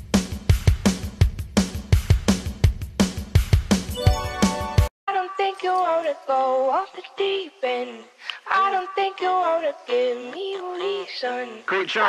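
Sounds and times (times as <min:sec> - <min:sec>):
pop song with beat: 0:05.1 - 0:11.6.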